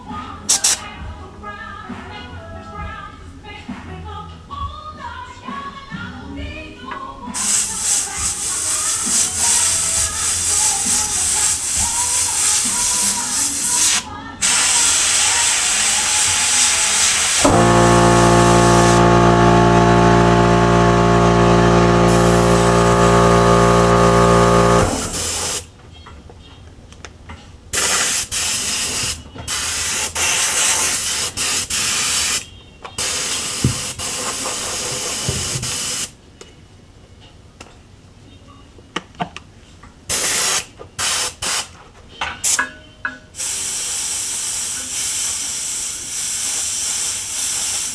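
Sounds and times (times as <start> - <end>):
airbrush spraying hiss: 0.5 - 0.8, 7.4 - 19.1, 22.1 - 22.7, 24.8 - 25.7, 27.8 - 32.4, 33.0 - 36.1, 40.1 - 41.7, 43.4 - 47.9
small compressor motor humming: 17.4 - 25.6.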